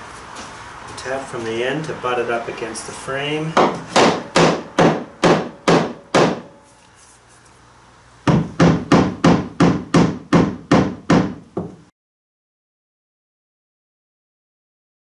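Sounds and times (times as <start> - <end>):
hammer tapping wood: 3.6 - 6.5, 8.3 - 11.8.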